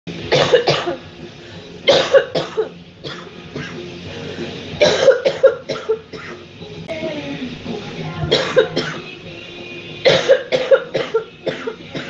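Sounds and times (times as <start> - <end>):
woman coughing hard: 0.3 - 1.0, 1.9 - 3.8, 4.8 - 6.4, 8.3 - 9.1, 10.0 - 12.0.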